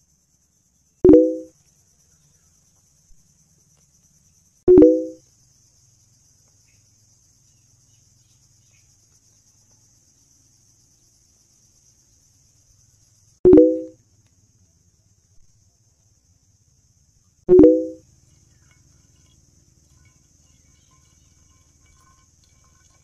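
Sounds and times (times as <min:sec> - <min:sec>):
high-pitched insect chirring: 0:01.1 - 0:01.6, 0:04.7 - 0:05.8, 0:13.0 - 0:14.0, 0:17.5 - 0:23.0.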